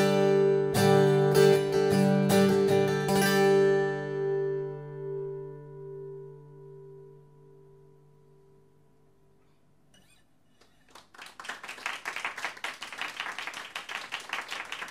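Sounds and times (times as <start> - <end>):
acoustic guitar chord ringing: 0.0 - 10.1
audience applause: 10.8 - 14.9.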